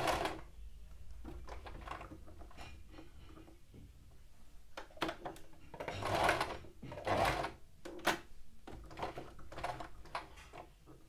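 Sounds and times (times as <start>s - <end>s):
sewing machine stitching: 0.0s - 0.4s, 5.0s - 7.6s.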